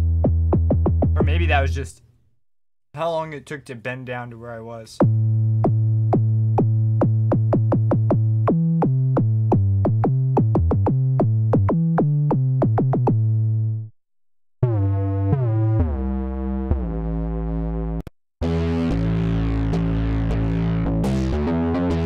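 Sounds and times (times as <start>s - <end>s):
synth bass notes with clicks: 0.0s - 1.4s, 5.0s - 13.9s, 14.6s - 22.0s.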